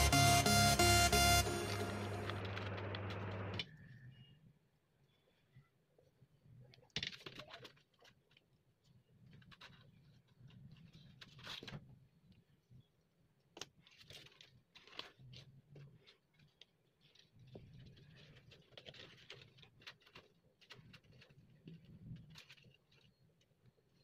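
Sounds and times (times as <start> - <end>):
paper and plastic crinkling: 13.8 - 23.2.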